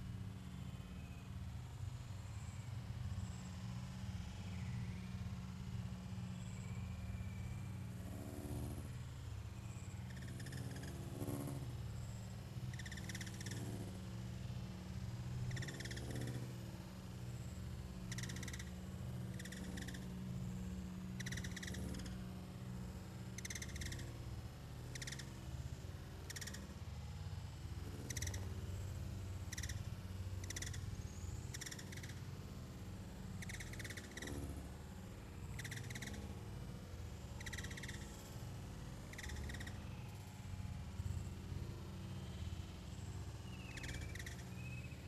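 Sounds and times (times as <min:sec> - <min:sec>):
small animal chirping: 0:12.7 - 0:13.7, 0:15.5 - 0:16.4, 0:18.1 - 0:20.1, 0:21.2 - 0:22.2, 0:23.4 - 0:24.1, 0:24.9 - 0:25.3, 0:26.3 - 0:26.6, 0:28.0 - 0:28.4, 0:29.5 - 0:29.8, 0:30.4 - 0:30.8, 0:31.5 - 0:32.2, 0:33.4 - 0:34.4, 0:35.6 - 0:36.3, 0:37.4 - 0:38.2, 0:39.1 - 0:39.8, 0:43.6 - 0:45.0.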